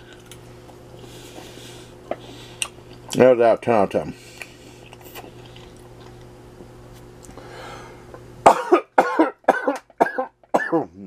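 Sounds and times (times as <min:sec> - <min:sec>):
faint steady hum: 0:00.0 - 0:11.0
man coughing hard: 0:08.4 - 0:11.0.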